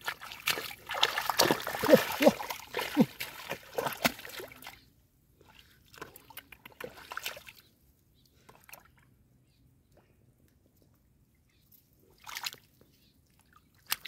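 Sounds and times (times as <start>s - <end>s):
hands sloshing in muddy water: 0.0s - 7.7s, 12.1s - 12.8s.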